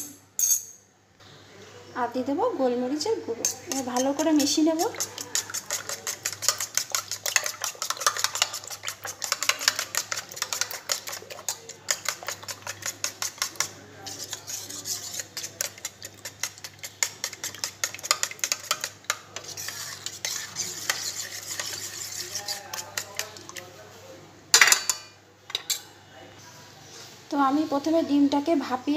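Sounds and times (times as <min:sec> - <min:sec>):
whisk clicking against metal bowl: 0:03.4 - 0:23.6.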